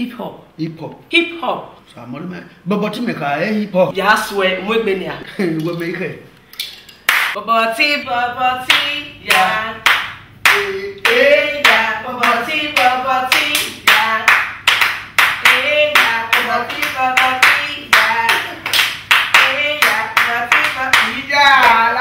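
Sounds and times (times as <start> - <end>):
hands clapping in rhythm: 7.0 - 7.4, 8.6 - 22.0
person singing: 10.5 - 14.3.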